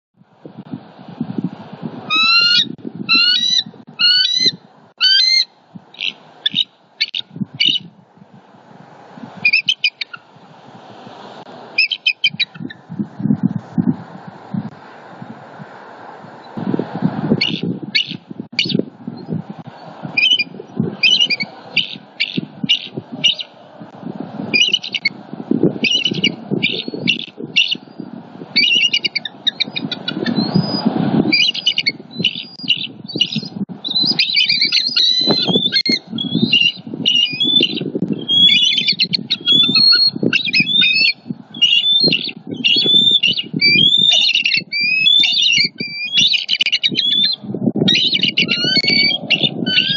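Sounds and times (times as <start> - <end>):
wind rumble on microphone: 0.2 - 49.9
eagles chattering calls: 2.1 - 7.9, 9.4 - 10.3, 11.8 - 12.8, 20.2 - 23.6, 24.6 - 25.1, 25.8 - 27.9, 28.6 - 30.7, 31.3 - 49.9.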